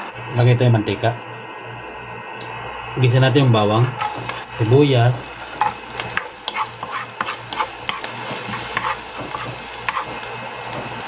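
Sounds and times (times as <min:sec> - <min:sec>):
wooden spatula scraping pan: 0:03.8 - 0:04.7, 0:05.5 - 0:11.0
garlic and onions sizzling in oil: 0:03.8 - 0:11.0.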